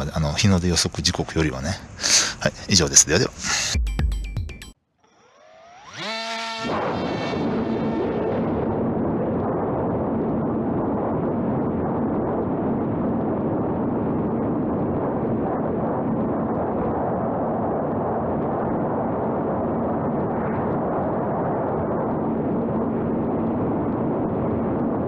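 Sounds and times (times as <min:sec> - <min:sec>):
low hum: 0:05.2 - 0:25.0
wind noise on microphone: 0:05.9 - 0:25.0.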